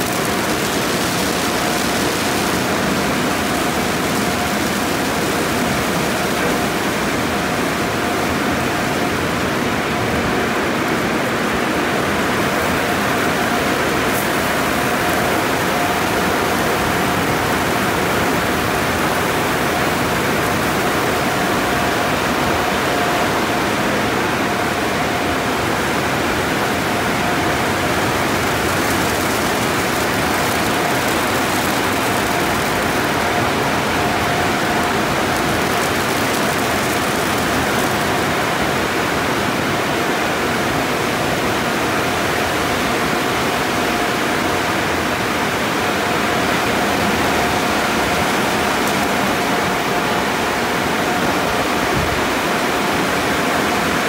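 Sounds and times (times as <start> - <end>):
water spray rushing: 0.0 - 8.6, 25.9 - 39.4
car wash machinery running: 0.0 - 54.0
faint steady whine: 0.0 - 54.0.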